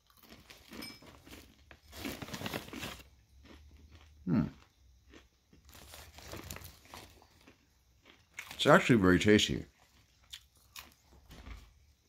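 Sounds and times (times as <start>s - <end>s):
crunchy chewing: 0.0s - 12.0s
person's voice: 8.6s - 9.7s.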